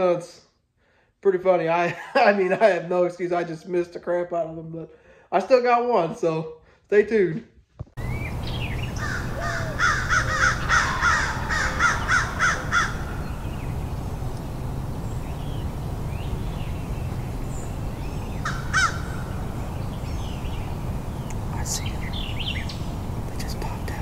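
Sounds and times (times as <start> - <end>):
crow cawing: 9.0 - 13.4, 18.4 - 19.4.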